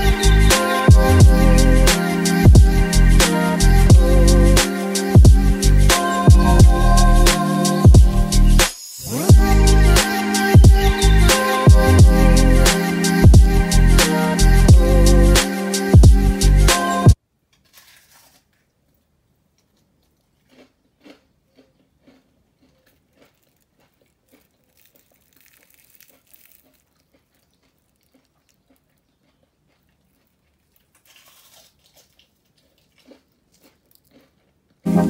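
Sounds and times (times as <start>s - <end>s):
faint crunching of fried food: 17.4s - 34.9s.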